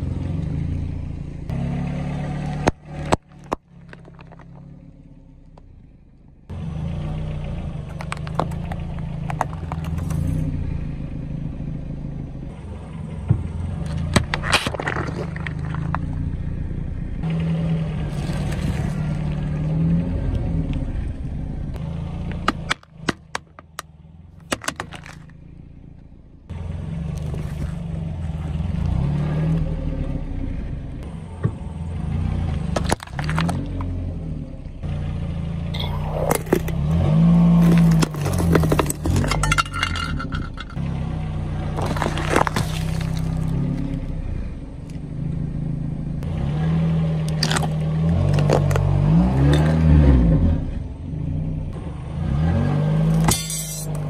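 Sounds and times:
car engine running low: 0.0s - 54.0s
tyre crushing plastic and metal: 13.9s - 16.0s, 22.4s - 23.8s, 24.4s - 25.4s, 32.7s - 33.9s, 35.8s - 40.8s, 41.7s - 43.6s.

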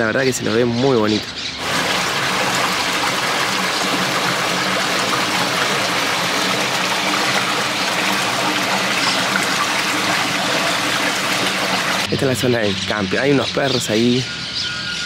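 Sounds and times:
stream water flowing: 1.6s - 12.1s.

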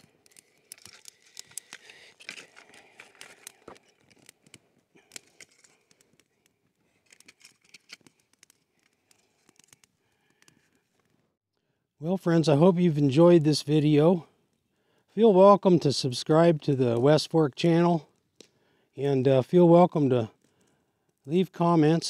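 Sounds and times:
kindling sticks snapping: 0.0s - 10.6s
campfire crackling: 0.0s - 11.3s, 12.4s - 22.0s.

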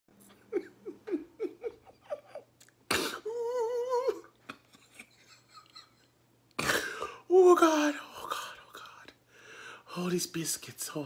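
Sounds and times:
man's muffled giggling: 0.3s - 2.5s
loud burst of breath: 9.3s - 9.9s.

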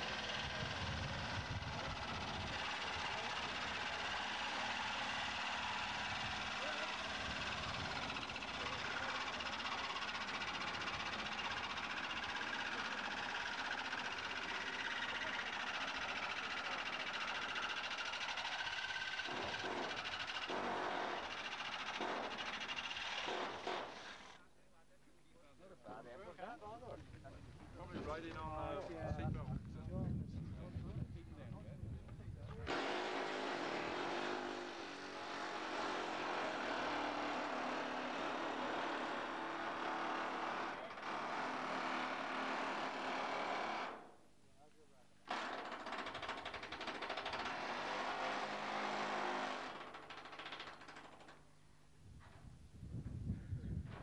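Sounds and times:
small engine running: 0.0s - 24.4s, 32.7s - 44.1s, 45.3s - 51.4s.

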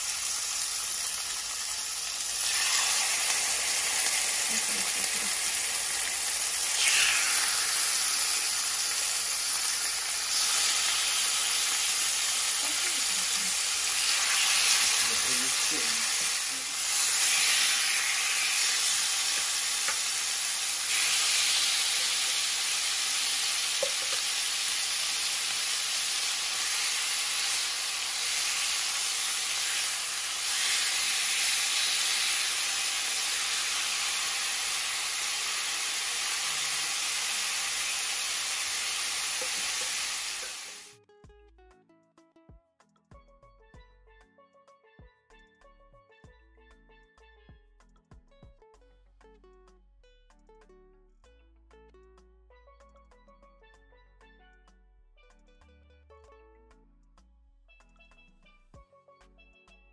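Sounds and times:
chicken sizzling in oil: 0.0s - 41.0s.

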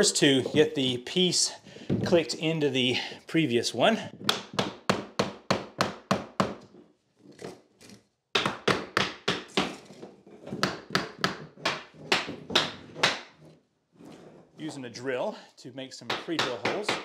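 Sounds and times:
hammer knocking on wood: 4.2s - 6.6s, 10.5s - 13.3s, 16.1s - 17.0s.

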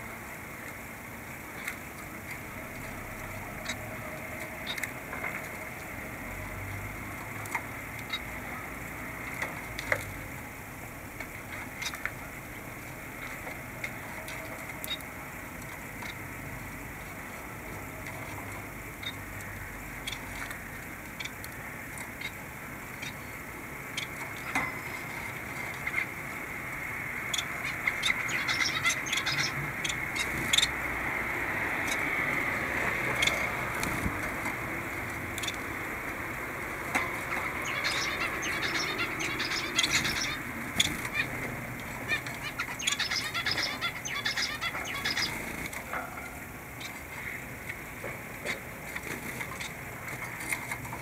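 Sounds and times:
steady background noise: 0.0s - 51.0s
small birds chirping: 11.4s - 46.0s.

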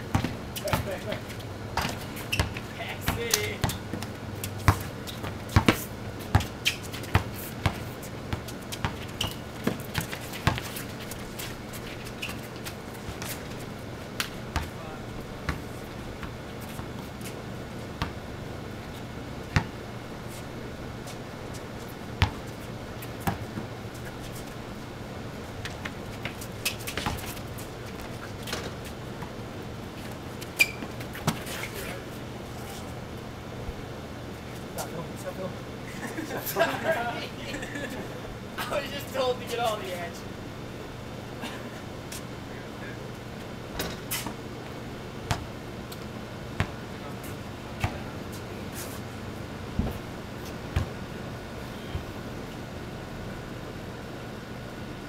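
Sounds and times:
steady low hum: 0.0s - 55.0s
basketball bouncing on concrete: 0.1s - 11.2s, 14.2s - 14.8s, 18.0s - 18.2s, 19.6s - 19.8s, 22.2s - 22.4s, 23.2s - 23.6s, 25.6s - 28.7s, 45.3s - 46.0s, 46.6s - 46.8s, 50.7s - 51.0s
sneaker squeak: 1.8s - 3.8s, 6.4s - 7.4s, 8.9s - 9.4s, 12.0s - 12.5s, 30.6s - 31.8s.

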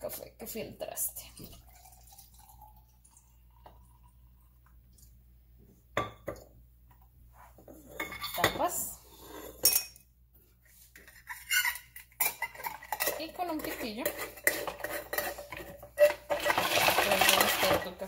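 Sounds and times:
glass and metal clinking: 9.6s - 10.0s.

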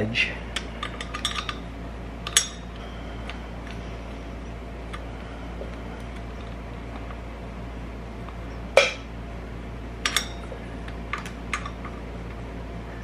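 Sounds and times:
steady low hum: 0.0s - 13.0s
metal tools clinking on metal: 0.8s - 1.6s.

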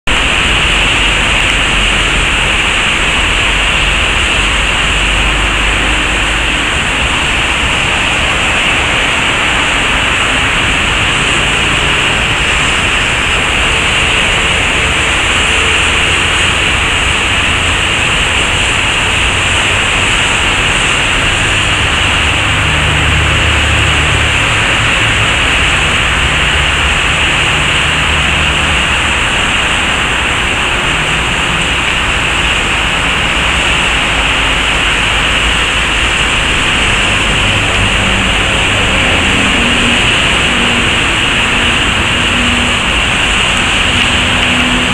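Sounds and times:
low rumble: 0.1s - 44.9s
rushing flood water: 0.1s - 44.9s.

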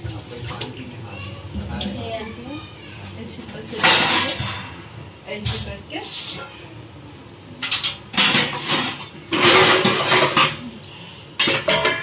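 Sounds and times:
pans and lid clattering: 3.8s - 4.7s, 7.6s - 10.6s, 11.4s - 12.0s.

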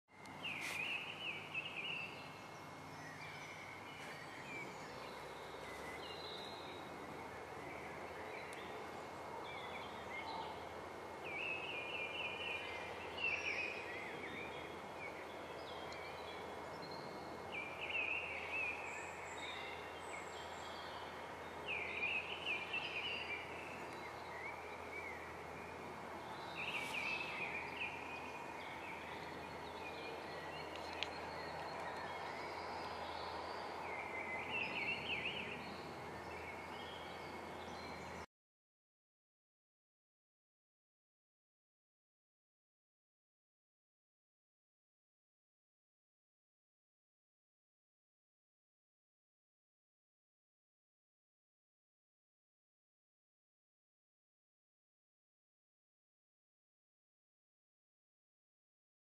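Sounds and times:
bird chirping: 0.1s - 38.3s
outdoor background hiss: 0.1s - 38.3s.

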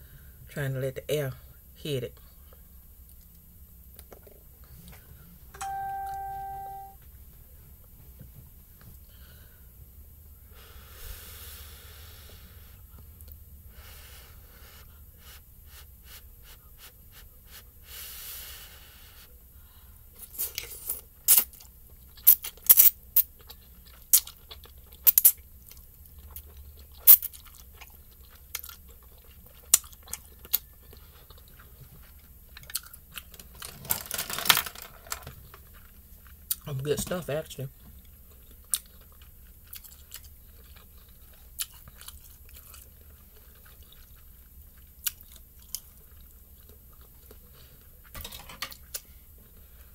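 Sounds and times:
chewing with wet smacks: 20.6s - 33.4s, 35.5s - 36.7s, 37.7s - 48.1s.

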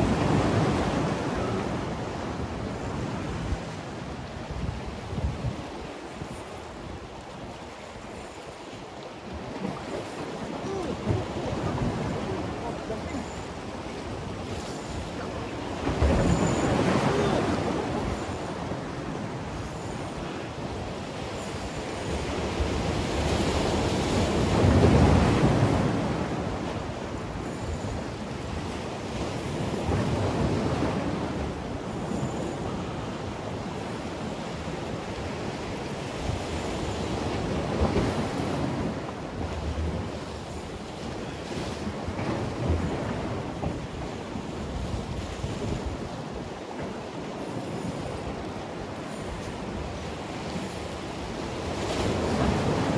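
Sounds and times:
wind buffeting microphone: 0.0s - 8.3s
sea waves washing against concrete: 0.0s - 52.9s.

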